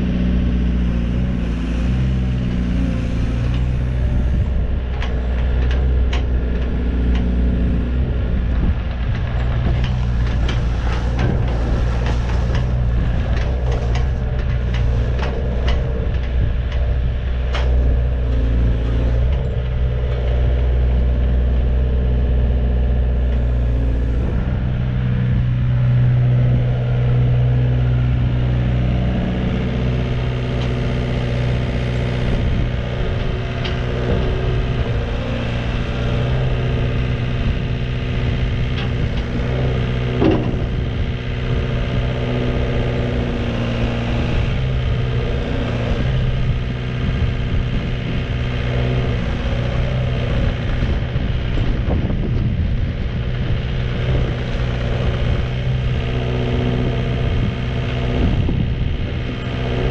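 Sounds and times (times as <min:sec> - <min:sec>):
excavator diesel engine running: 0:00.0 - 0:59.9
sharp clicks and knocks: 0:04.8 - 0:20.8, 0:38.2 - 0:41.0.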